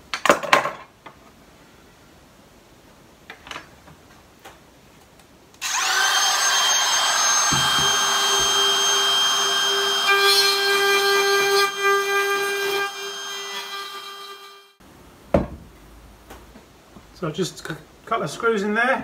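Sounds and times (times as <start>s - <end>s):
router high whine: 5.6s - 14.8s.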